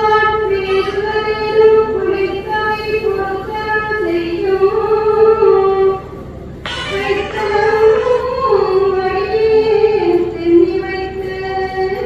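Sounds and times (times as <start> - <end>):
high voice singing slowly: 6.6 - 10.2.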